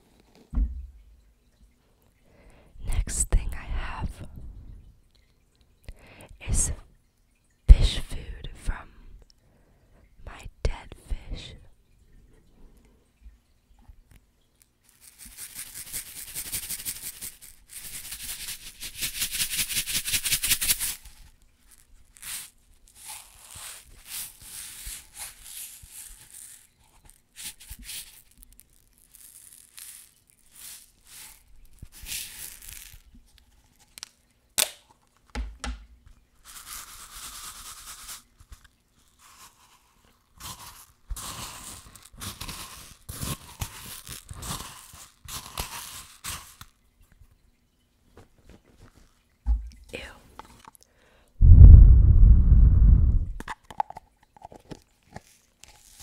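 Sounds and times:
plastic cup crinkling: 14.5 - 35.5, 36.4 - 46.8, 53.4 - 56.0
rubbing on plastic: 14.8 - 33.2.

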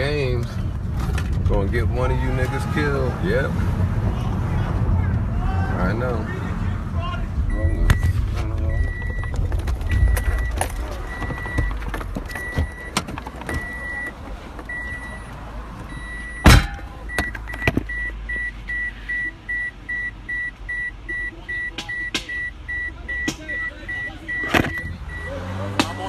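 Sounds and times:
car warning chime beeping: 7.5 - 26.0
rustling and small knocks: 8.1 - 15.0
loud thump: 16.4 - 16.9.

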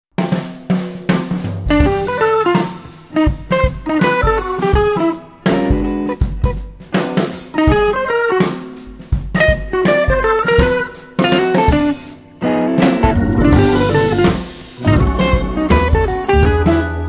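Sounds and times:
drum kit beat: 0.1 - 17.0
plucked guitar runs: 12.5 - 16.6.

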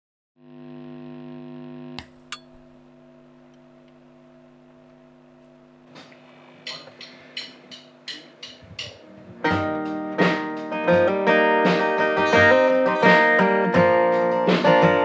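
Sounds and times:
guitar amplifier mains hum: 0.4 - 15.0
music: 5.9 - 15.0.

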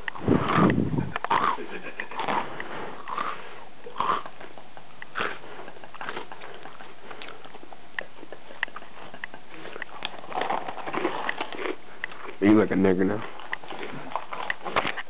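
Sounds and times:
wet mouth clicks: 0.0 - 12.4, 13.2 - 15.0
cereal crunching while chewing: 0.0 - 15.0.

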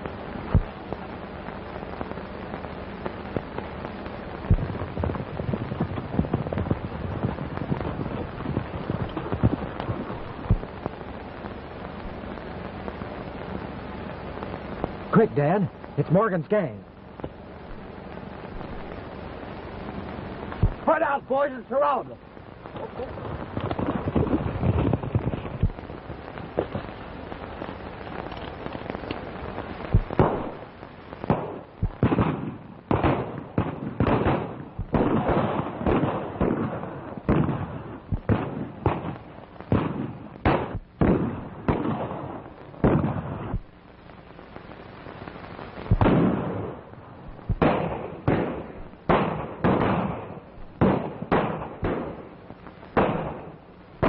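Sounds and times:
gunshots: 20.5 - 22.0, 29.9 - 30.6, 31.3 - 43.7, 45.9 - 52.3, 53.0 - 53.6.

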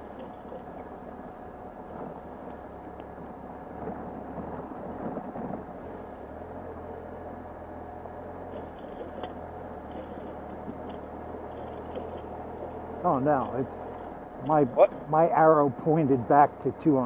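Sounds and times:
motorcycle engine at low speed: 0.0 - 17.0
tyres crunching over rocks: 8.4 - 15.1.

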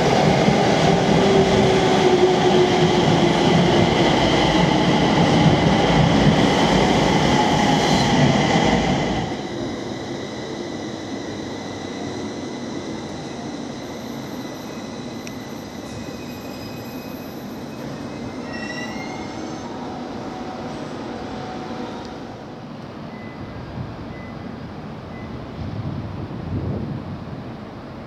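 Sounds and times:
high squealing wheels: 9.4 - 21.8.

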